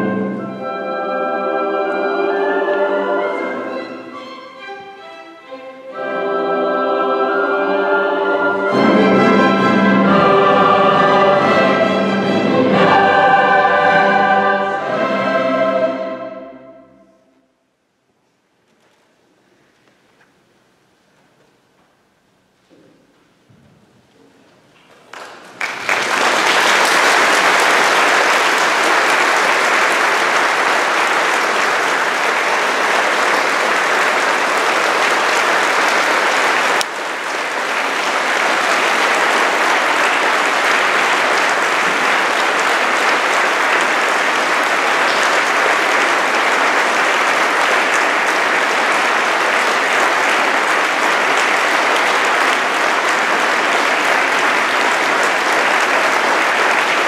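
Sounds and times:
audience applauding: 24.9 - 57.0.

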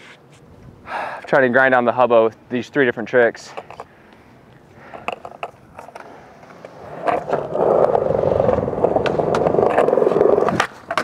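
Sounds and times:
skateboard wheels rolling on concrete: 0.0 - 11.0
skateboard clicks: 3.5 - 3.9, 4.5 - 11.0.

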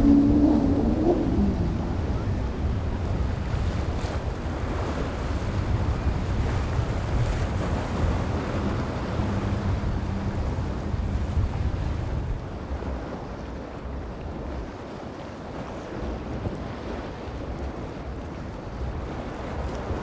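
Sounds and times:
distant powerboat drone: 0.0 - 20.0
waves: 0.0 - 20.0
wind rumbling on microphone: 0.0 - 20.0.

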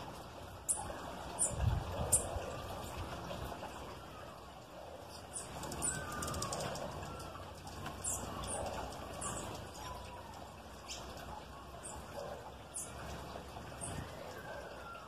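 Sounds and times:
songbirds high-pitched chips: 0.0 - 15.0
softer lower bird calls: 3.8 - 15.0.

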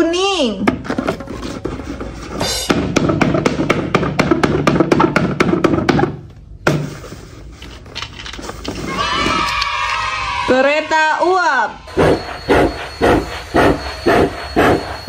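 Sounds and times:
low hum: 11.5 - 15.0.

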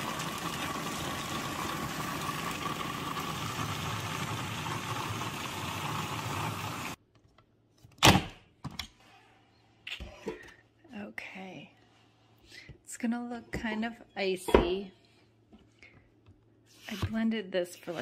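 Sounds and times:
food processor chopping ice: 0.0 - 7.0.

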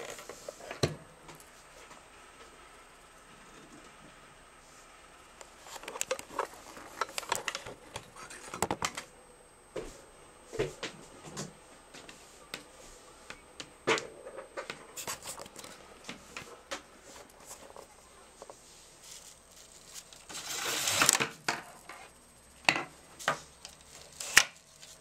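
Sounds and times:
bubble wrap crinkling: 17.2 - 21.9, 23.6 - 25.0.

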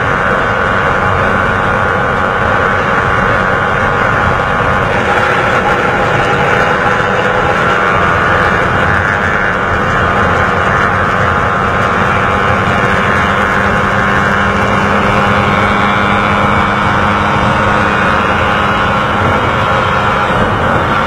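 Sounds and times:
motorcycle engine running: 0.0 - 21.0
wind rush on microphone: 0.0 - 21.0.

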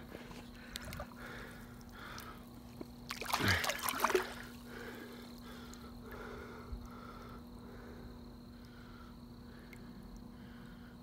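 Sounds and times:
fish splashing in water: 0.8 - 4.9.

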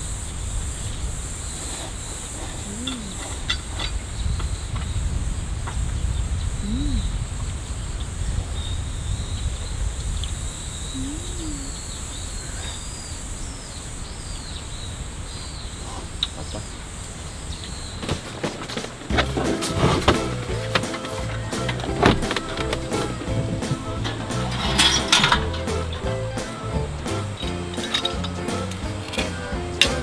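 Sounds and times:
small birds chirping: 0.1 - 19.2
low rising and falling calls: 2.6 - 3.3, 6.6 - 7.1, 10.9 - 12.1
low rumble: 4.8 - 11.9.

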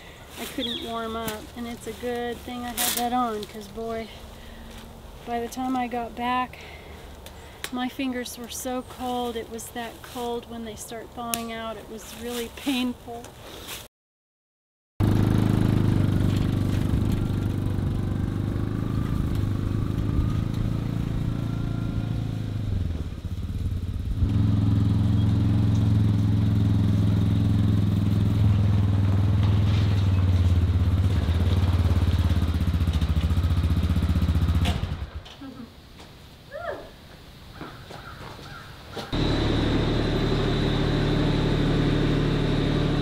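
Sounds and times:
utility vehicle engine running: 15.0 - 35.4, 39.2 - 43.0.

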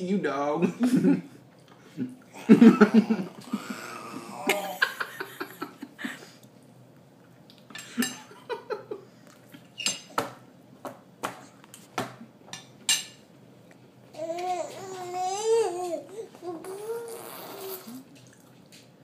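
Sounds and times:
baby vocal sounds: 3.2 - 4.8, 14.1 - 18.2.

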